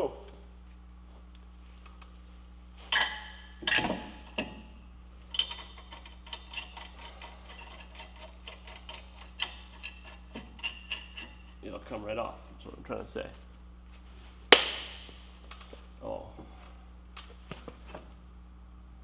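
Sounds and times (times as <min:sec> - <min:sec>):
metal clanks with ring: 0:02.9 - 0:04.6.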